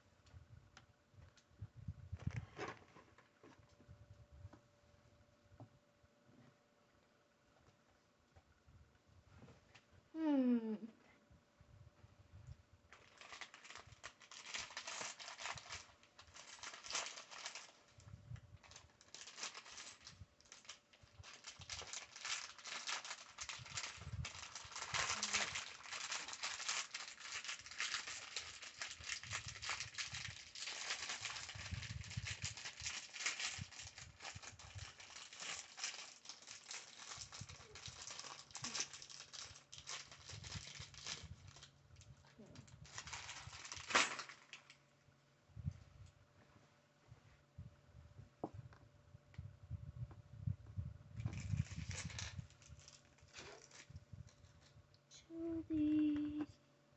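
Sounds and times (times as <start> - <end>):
plastic bag crinkling: 12.9 - 44.8, 51.2 - 54.7.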